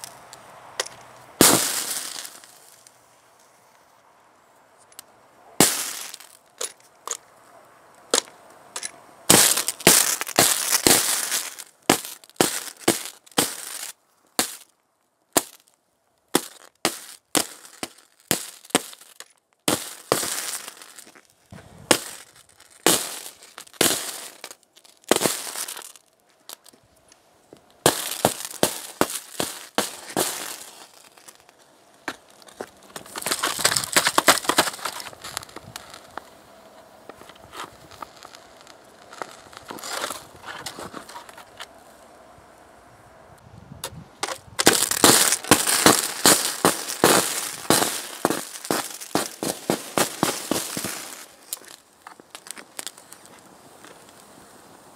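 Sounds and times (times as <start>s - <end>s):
sparks cracking and popping: 0.0s - 2.9s, 5.6s - 7.2s, 8.0s - 14.8s, 15.4s - 15.7s, 16.3s - 26.8s, 27.7s - 36.3s, 37.1s - 41.4s, 44.2s - 54.2s.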